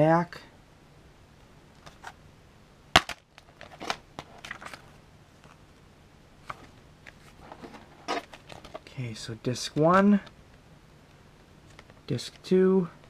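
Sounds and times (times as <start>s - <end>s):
paper insert rustling: 3.4s - 5.6s, 6.4s - 9.0s.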